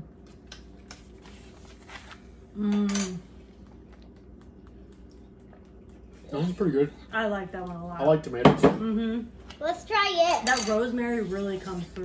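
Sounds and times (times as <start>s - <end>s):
person humming: 2.5s - 3.2s.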